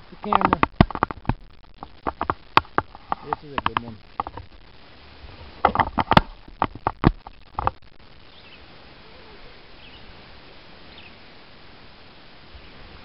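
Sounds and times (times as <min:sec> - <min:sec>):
sharp knocks and taps: 0:00.2 - 0:04.5, 0:05.6 - 0:07.8
faint high chirps: 0:08.2 - 0:10.2.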